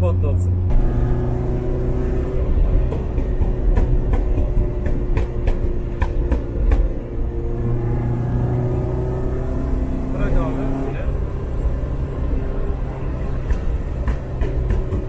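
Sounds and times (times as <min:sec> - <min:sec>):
car engine drone: 0:00.0 - 0:15.0
sharp exhaust pops: 0:00.7 - 0:08.4, 0:13.2 - 0:15.0.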